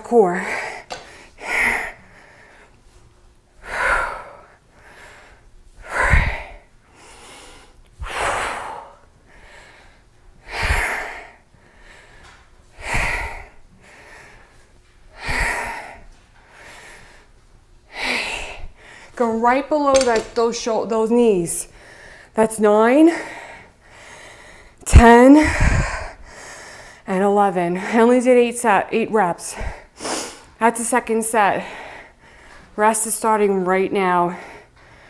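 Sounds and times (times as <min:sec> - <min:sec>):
woman breathing hard: 0:00.4 - 0:02.8, 0:03.6 - 0:17.3, 0:17.9 - 0:19.2, 0:21.7 - 0:22.4, 0:23.1 - 0:27.1, 0:29.5 - 0:30.6, 0:31.6 - 0:32.7, 0:34.3 - 0:35.0.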